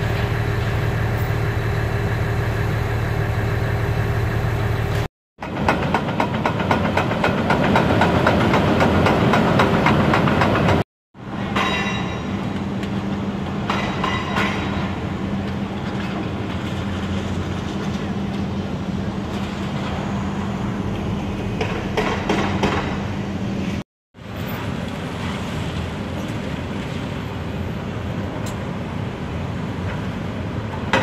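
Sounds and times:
excavator engine drone: 0.0s - 5.7s.

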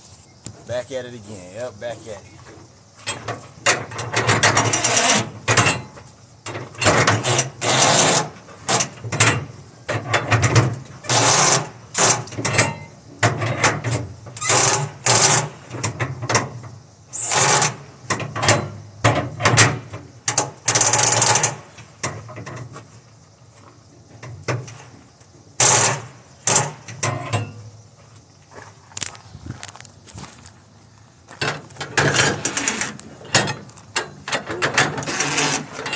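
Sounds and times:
ratchet winch clattering: 6.8s - 8.8s, 11.1s - 12.3s, 20.7s - 21.6s, 34.3s - 35.9s.

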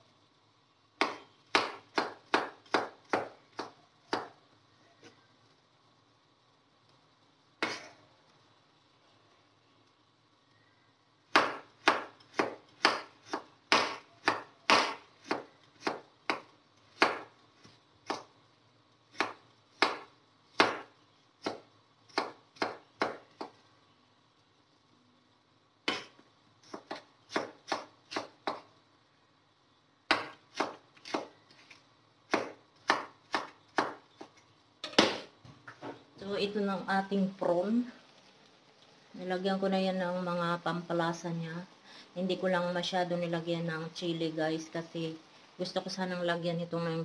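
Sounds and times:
knife chopping on wooden board: 1.0s - 4.3s, 7.6s - 7.9s, 11.3s - 17.3s, 19.1s - 23.6s, 25.9s - 28.7s, 30.1s - 31.3s, 32.3s - 34.3s, 34.9s - 35.3s.

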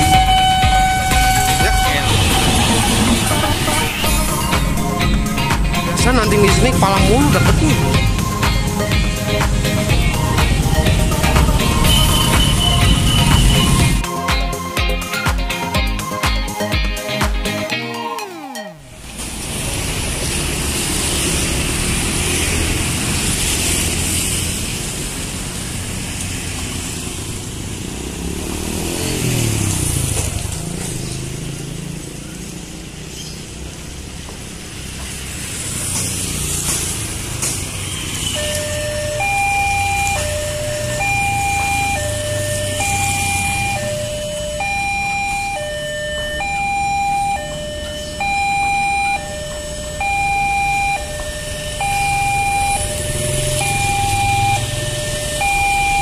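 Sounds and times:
two-tone crossing warning alarm: 0.0s - 19.4s, 36.4s - 56.0s
motor scooters passing: 0.0s - 56.0s.

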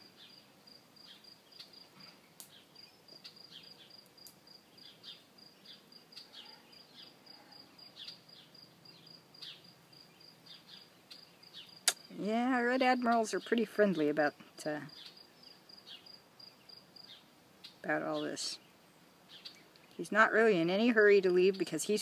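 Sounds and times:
insect trill: 0.1s - 1.9s, 2.5s - 13.1s.

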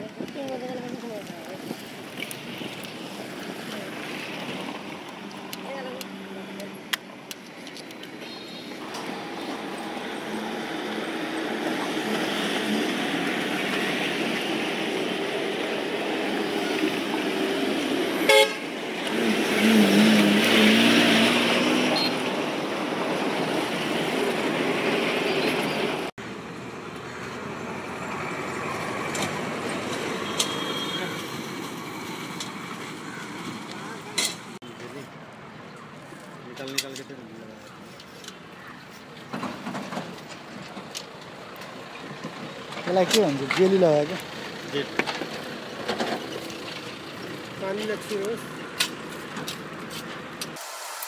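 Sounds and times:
voices: 0.0s - 2.0s
passing traffic: 0.0s - 51.0s
vehicle horn sounding: 18.2s - 18.7s, 30.2s - 31.2s.

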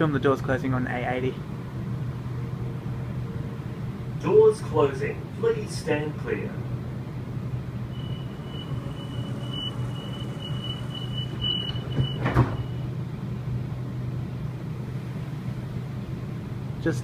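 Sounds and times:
low carriage hum: 0.0s - 17.0s
door warning tone beeping: 7.9s - 13.0s
sliding doors thudding shut: 9.1s - 12.8s.

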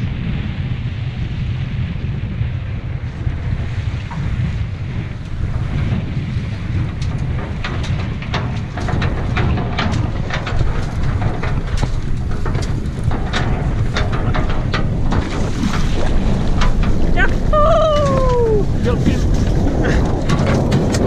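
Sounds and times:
wind buffeting microphone: 0.0s - 21.0s
sharp ticks and knocks: 5.2s - 21.0s.

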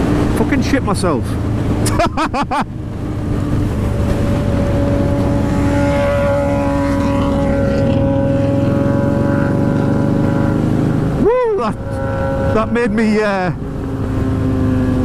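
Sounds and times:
low rumble: 1.2s - 8.5s
loud mechanical drone: 2.8s - 15.0s.

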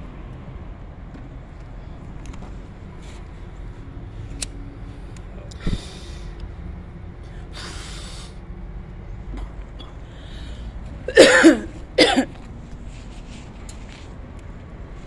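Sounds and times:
steady low rumble: 0.0s - 15.0s
person breathing sharply: 5.6s - 6.4s, 7.2s - 8.4s, 10.0s - 10.9s.

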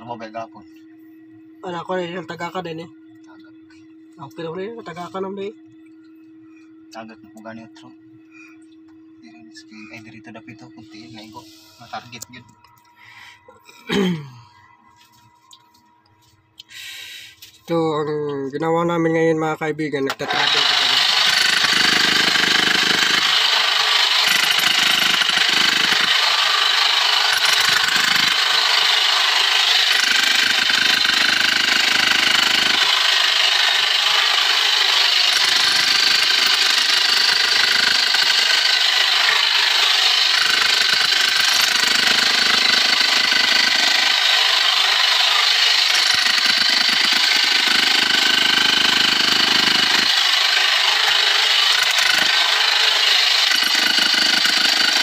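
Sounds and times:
power hammer chiseling rock: 20.2s - 55.0s.

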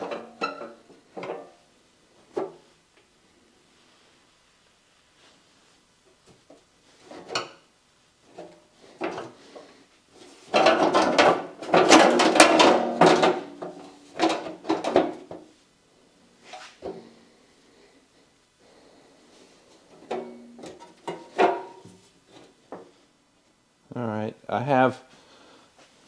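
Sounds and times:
loud clattering and scraping: 10.2s - 15.4s.

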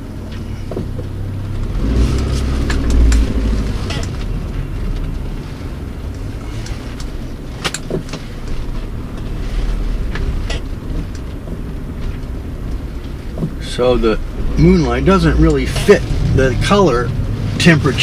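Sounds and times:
engine and tyre rumble: 0.0s - 18.0s.

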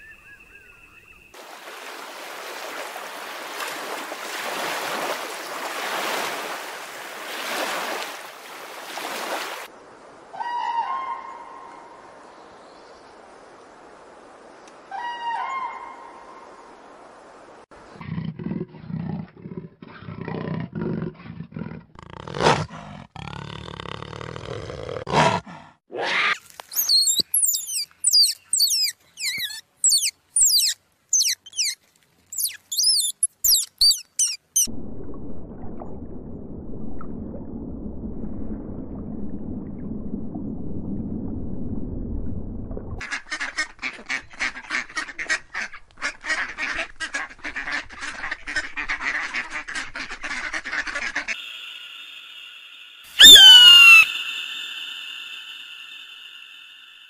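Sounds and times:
quick high chirps: 26.7s - 34.7s, 53.2s - 56.9s
steady low rumble: 34.7s - 43.0s.

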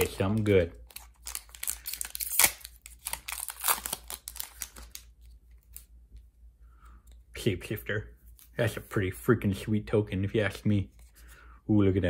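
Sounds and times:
foil wrapper crinkling: 0.0s - 5.8s.

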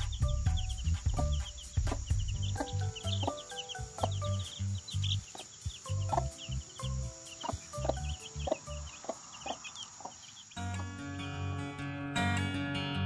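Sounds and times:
hen clucking: 0.0s - 11.0s
chicks peeping: 0.0s - 11.2s
acoustic guitar music: 10.6s - 13.0s.

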